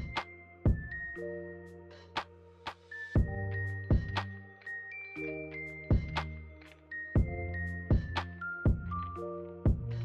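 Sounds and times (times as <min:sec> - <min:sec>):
background music with steady beat: 0:00.0 - 0:10.0.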